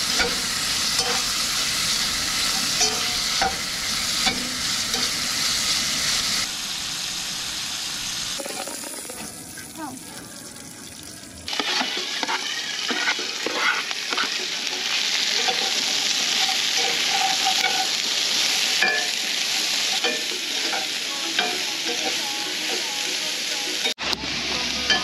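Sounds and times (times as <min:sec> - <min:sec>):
vegetables sizzling in skillet: 0:00.0 - 0:25.0
spatula scraping pan: 0:11.5 - 0:18.2.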